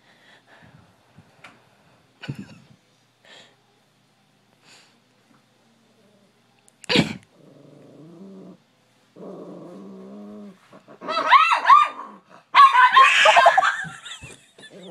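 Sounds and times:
dog growling: 0:07.3 - 0:08.6, 0:09.2 - 0:11.1, 0:14.6 - 0:14.9
dog barking: 0:11.0 - 0:13.7
high-pitched dog yapping: 0:11.0 - 0:13.8.

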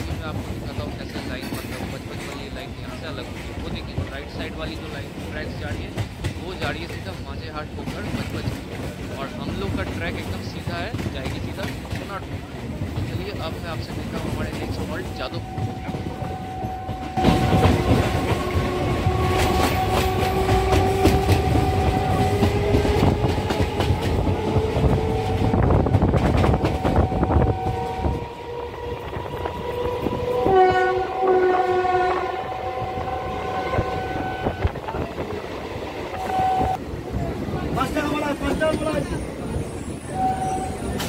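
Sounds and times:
train wheels clicking over rail joints: 0:00.0 - 0:28.2
train horn: 0:15.1 - 0:25.8, 0:26.4 - 0:35.0, 0:36.1 - 0:36.8, 0:40.0 - 0:41.0.

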